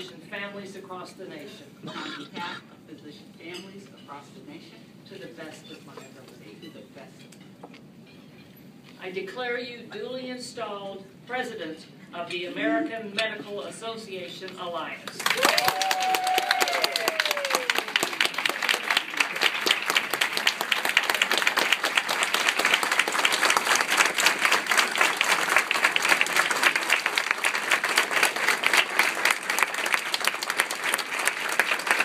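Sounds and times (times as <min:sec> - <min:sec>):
audience applauding: 0:15.1 - 0:32.0.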